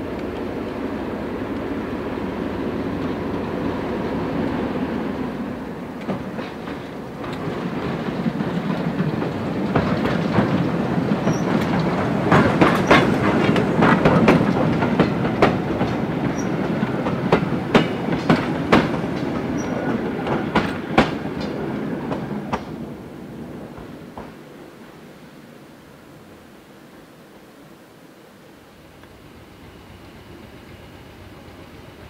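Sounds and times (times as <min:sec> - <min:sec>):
train rumbling past: 0:00.0 - 0:27.2, 0:28.5 - 0:32.0
wheels clicking over rail joints: 0:05.8 - 0:22.8.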